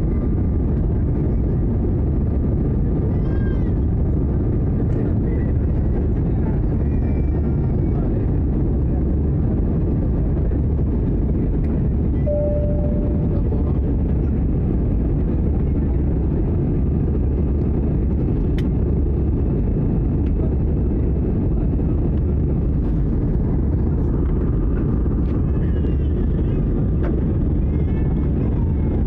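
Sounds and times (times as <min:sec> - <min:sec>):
airliner cabin engine drone: 0:00.0 - 0:29.0
short steady tone: 0:12.2 - 0:13.5.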